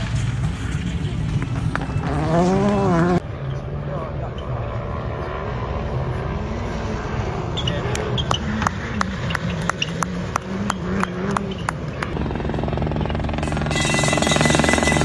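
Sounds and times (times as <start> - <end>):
rally car engine: 0.0 - 12.6
loud harsh sound: 13.4 - 15.0.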